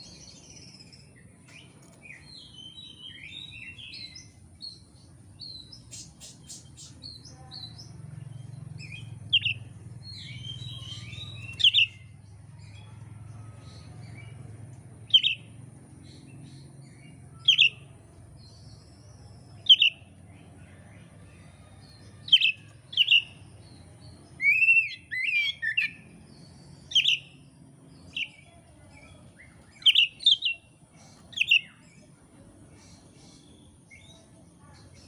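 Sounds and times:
bird whistling and warbling: 24.4s - 26.0s.

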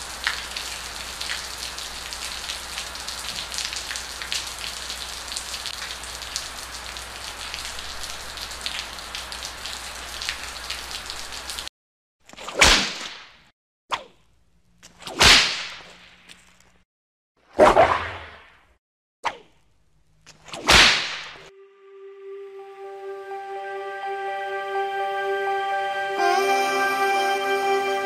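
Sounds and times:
rain-like patter with crackles: 0.0s - 11.7s
whip lashes: 12.3s - 14.2s, 14.9s - 16.0s, 17.5s - 18.6s, 20.5s - 21.5s.

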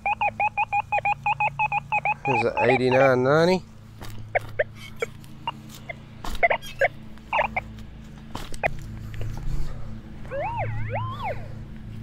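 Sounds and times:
metal detector beeps: 0.0s - 3.2s, 6.4s - 7.6s
steady low hum: 0.0s - 12.0s
wavering wail: 10.2s - 11.7s.

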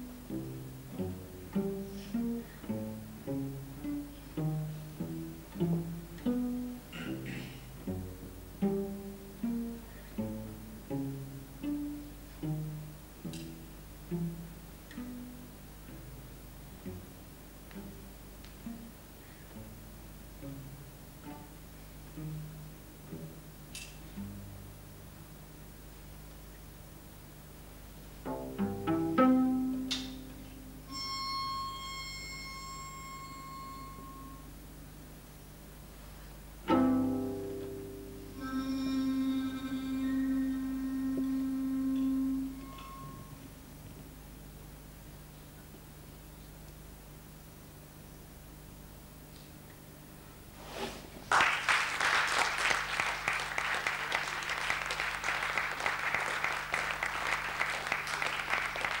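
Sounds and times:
cello notes: 0.0s - 25.9s, 27.8s - 34.7s, 36.6s - 44.1s
audience applauding: 51.3s - 59.0s.

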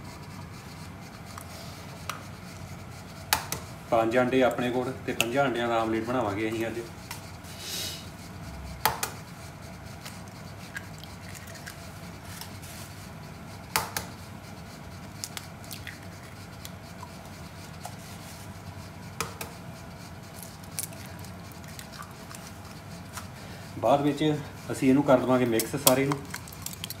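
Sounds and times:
steady low hum: 0.0s - 27.0s
eggs cracking against a bowl: 10.0s - 12.6s, 15.1s - 18.0s, 20.3s - 23.4s, 25.4s - 27.0s.

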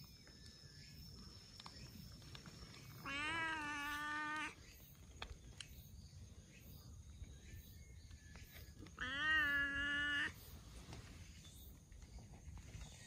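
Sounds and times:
cat meowing: 3.0s - 4.6s, 9.0s - 10.4s.

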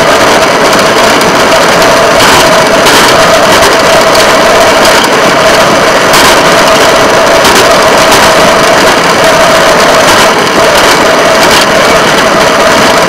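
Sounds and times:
constant whine: 0.0s - 13.0s
rail vehicle engine running: 0.0s - 13.0s.

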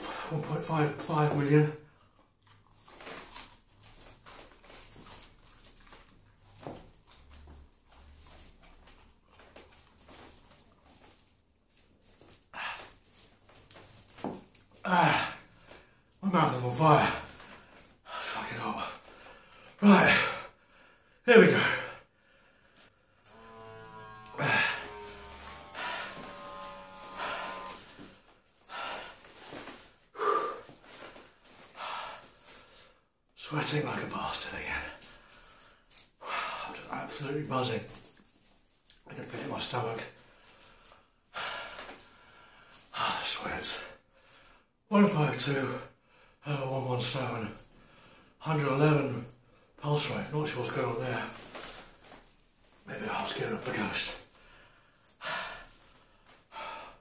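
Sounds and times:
man chewing: 2.0s - 3.9s, 5.0s - 6.2s
man breathing hard through mouth: 22.0s - 33.0s, 54.3s - 57.0s.

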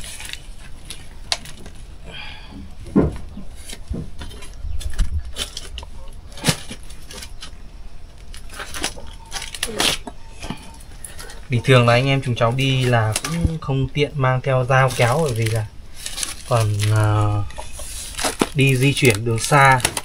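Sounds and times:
packaging rustling and ripping: 0.0s - 2.0s, 3.5s - 13.6s, 14.6s - 20.0s
parcel thuds: 0.6s - 7.6s.

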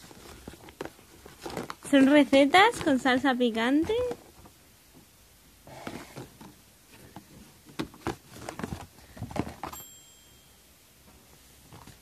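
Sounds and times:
packages rustling: 0.0s - 4.6s, 5.6s - 10.0s.

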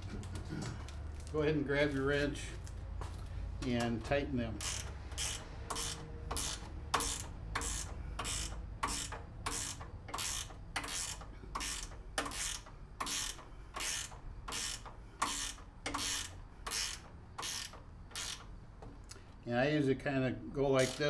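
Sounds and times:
ratchet wrench clicking: 4.5s - 18.6s, 20.8s - 21.0s.

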